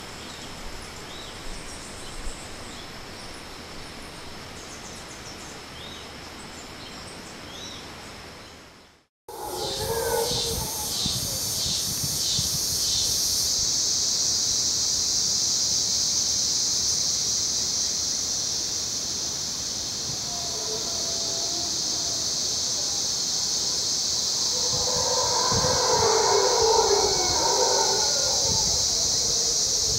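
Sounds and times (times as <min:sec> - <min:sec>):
insect chorus: 0:00.0 - 0:08.5, 0:09.3 - 0:29.9
distant howler monkeys roaring: 0:09.3 - 0:11.4, 0:20.0 - 0:29.9.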